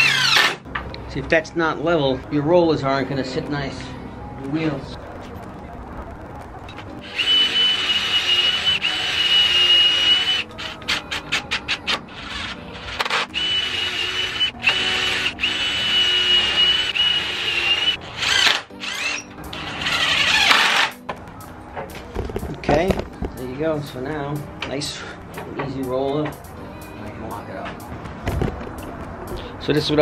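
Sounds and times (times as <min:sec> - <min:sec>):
power drill running: 0:00.0 - 0:00.6, 0:07.0 - 0:10.8, 0:11.8 - 0:20.9.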